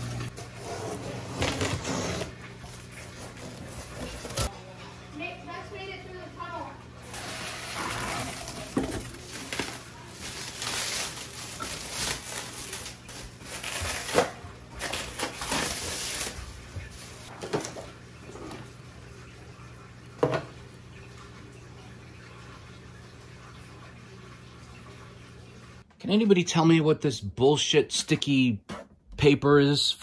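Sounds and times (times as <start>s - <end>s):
plastic and cardboard crinkling: 7.2s - 17.3s.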